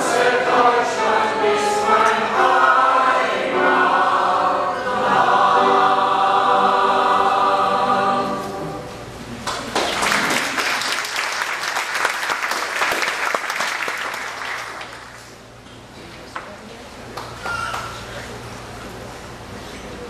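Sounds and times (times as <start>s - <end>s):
mixed choir singing: 0.0s - 9.1s
audience applause: 9.4s - 15.2s.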